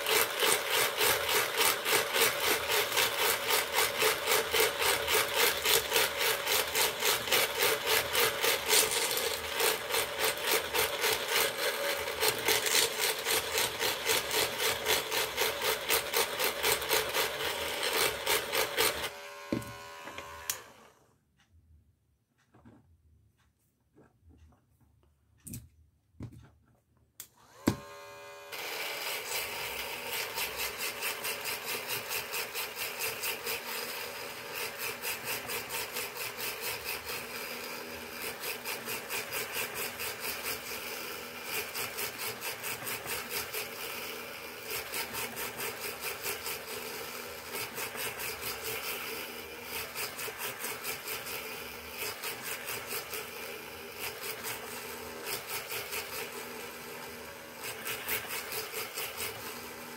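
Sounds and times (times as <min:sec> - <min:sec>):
drill motor whine: 0:00.0 - 0:21.0, 0:27.4 - 0:34.8.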